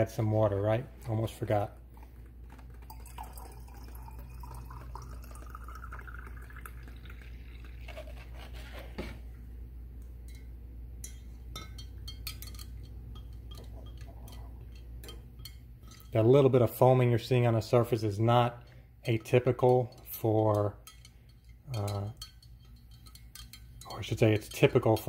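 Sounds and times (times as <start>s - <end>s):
water pouring into a glass jar: 2.7s - 8.6s
stir stick tapping glass: 10.2s - 16.2s, 19.0s - 25.0s.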